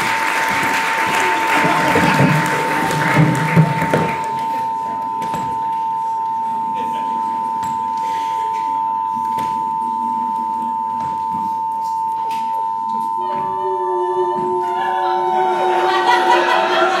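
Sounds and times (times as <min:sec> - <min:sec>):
steady test tone beep: 0:04.1 - 0:16.8
held notes at different pitches: 0:12.9 - 0:17.0.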